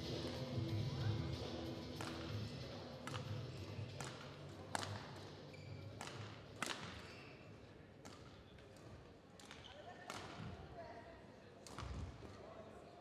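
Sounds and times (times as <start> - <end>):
intro music: 0.0 - 2.6
sports hall hum: 0.0 - 13.0
racket hitting shuttlecock: 2.0 - 5.1, 6.0 - 7.1.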